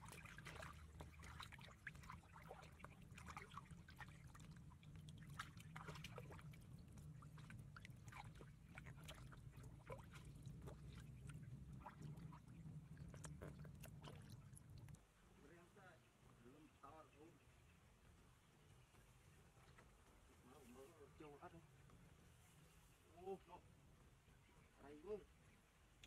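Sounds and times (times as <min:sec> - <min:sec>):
small splashes: 0:00.0 - 0:15.0
water sloshing and trickling: 0:00.0 - 0:15.4
steady low hum: 0:00.0 - 0:26.0.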